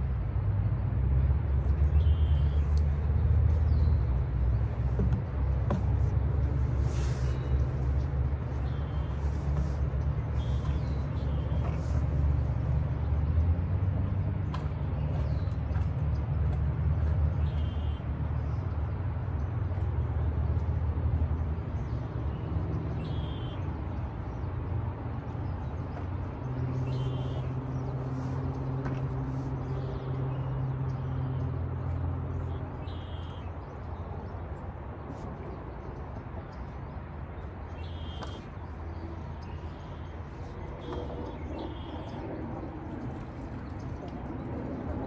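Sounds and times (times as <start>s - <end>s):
low outdoor rumble: 0.0s - 45.0s
bird chirps: 23.0s - 23.7s, 26.7s - 27.6s, 32.8s - 33.5s, 37.7s - 38.5s, 39.4s - 42.3s.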